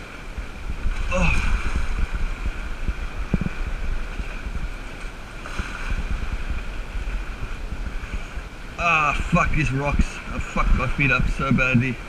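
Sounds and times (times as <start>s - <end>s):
sea washing against rocks: 0.0s - 12.0s
wind buffeting microphone: 0.0s - 12.0s.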